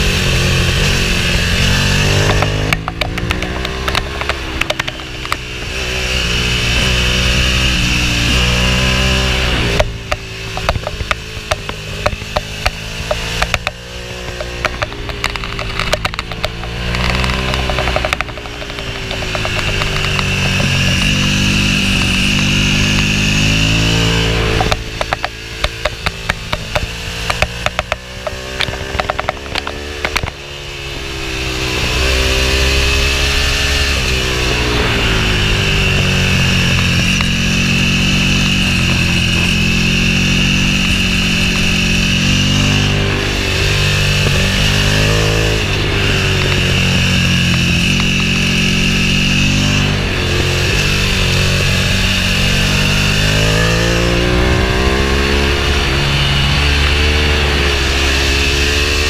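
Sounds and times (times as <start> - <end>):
motorcycle engine accelerating: 0.0 - 59.0.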